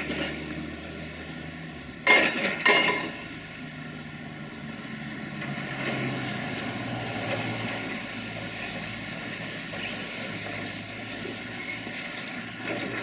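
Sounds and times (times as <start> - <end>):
concrete cracking and rubble clinking: 2.1 - 3.2.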